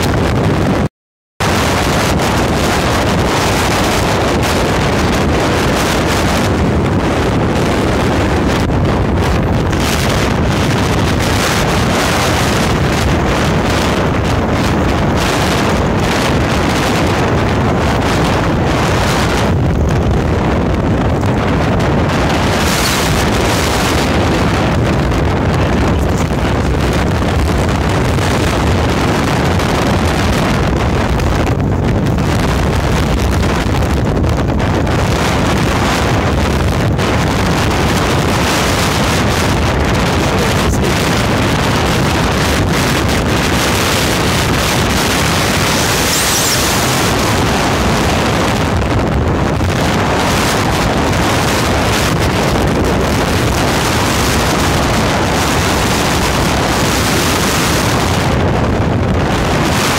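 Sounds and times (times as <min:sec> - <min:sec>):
wind blowing over microphone: 0:00.0 - 0:59.9.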